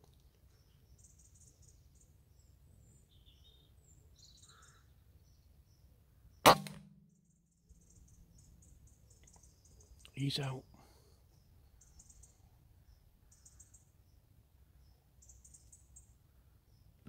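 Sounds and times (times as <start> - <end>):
air rifle shot crack: 6.5 - 7.1.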